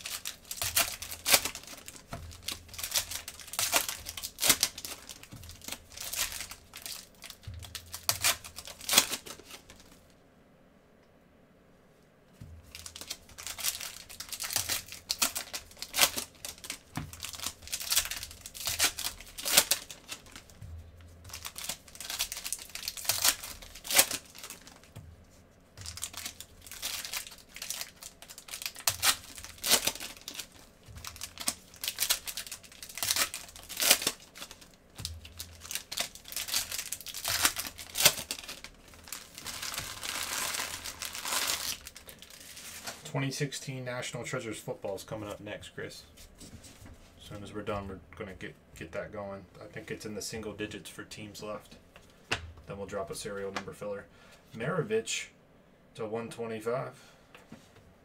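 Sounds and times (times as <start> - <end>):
wrappers tearing and crinkling: 0.0 - 10.0, 12.6 - 20.6, 21.3 - 24.9, 25.8 - 43.1.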